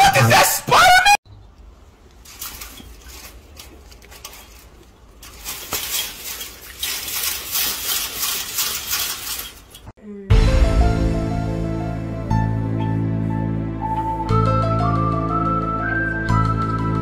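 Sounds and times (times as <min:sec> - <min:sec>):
scratchy rustling: 0:02.0 - 0:09.9.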